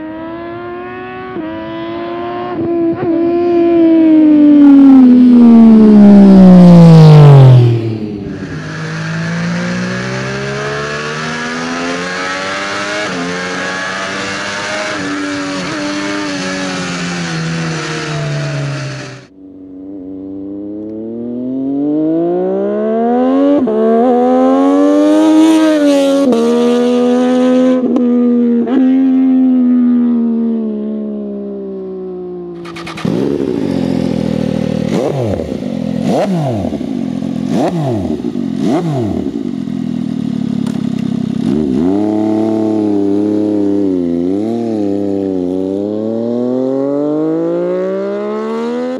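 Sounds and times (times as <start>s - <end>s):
motorcycle engine revving: 0.0s - 48.9s.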